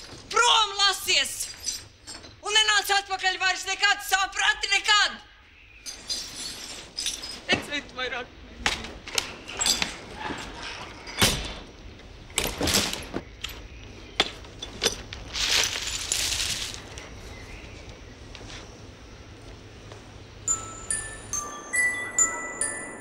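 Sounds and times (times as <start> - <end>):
broken glass clinking and crunching: 1.4 - 2.4, 5.8 - 7.7, 14.6 - 16.9
rustling scrape: 5.9 - 7.5, 15.2 - 17.5.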